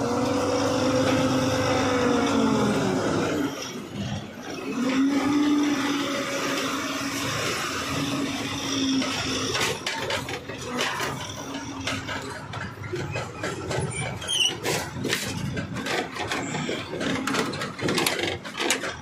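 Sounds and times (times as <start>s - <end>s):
diesel truck engine running: 0.0s - 19.0s
clicks and rattles: 3.9s - 19.0s.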